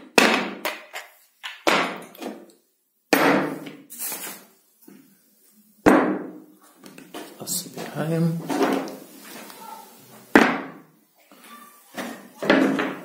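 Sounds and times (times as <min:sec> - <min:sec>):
plastic parts knocking on wooden table: 0:00.0 - 0:02.5, 0:12.4 - 0:13.0.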